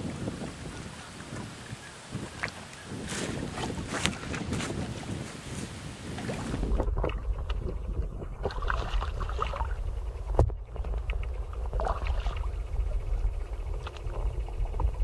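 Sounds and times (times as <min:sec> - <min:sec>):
wind rumble on microphone: 0:00.0 - 0:15.0
water splashing and sloshing: 0:05.5 - 0:15.0.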